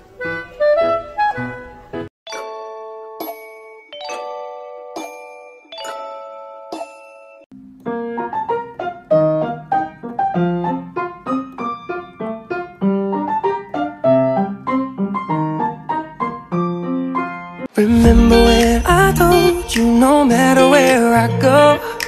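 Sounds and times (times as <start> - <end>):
piano music: 0.0 - 22.0
chime-like notes: 2.3 - 7.5.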